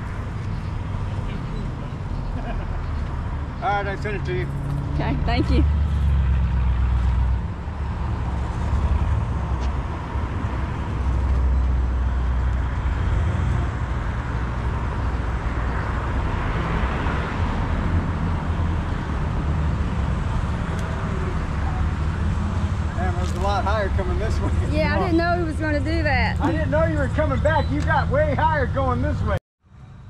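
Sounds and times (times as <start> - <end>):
car engine rumbling: 0.0 - 29.4.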